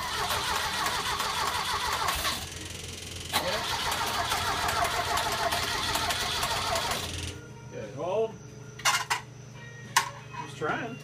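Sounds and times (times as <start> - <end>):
engine cranking: 0.0 - 7.3.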